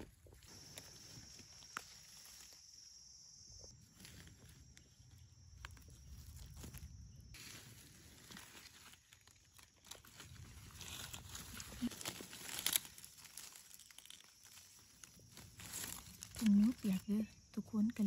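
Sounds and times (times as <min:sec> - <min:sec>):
rustling of dry leaves: 0:00.0 - 0:18.0.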